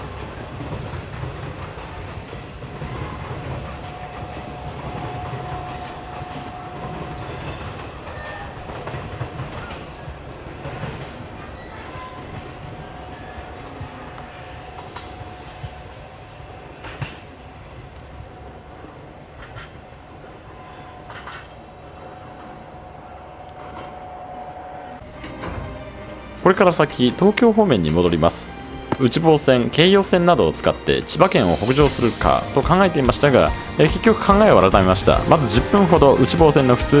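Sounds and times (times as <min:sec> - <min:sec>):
train rumble: 0:00.0 - 0:11.4, 0:25.0 - 0:37.0
faint thin steady tone: 0:25.0 - 0:36.2.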